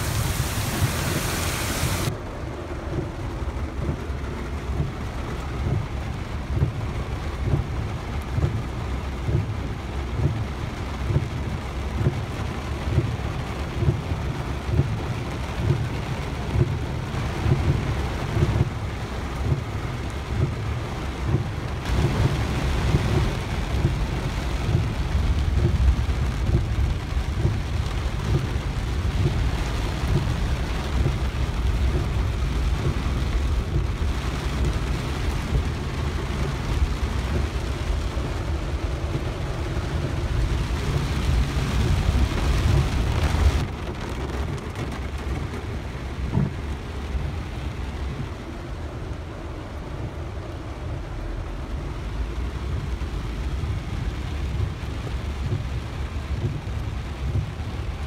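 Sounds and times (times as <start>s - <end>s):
heavy rain on car roof: 0.0s - 58.0s
low rumble: 17.4s - 58.0s.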